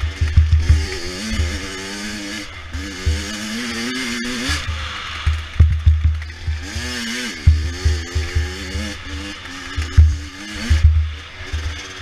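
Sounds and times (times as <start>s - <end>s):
dirt bike engine revving: 0.0s - 12.0s
heavy low thumps: 5.6s - 6.2s.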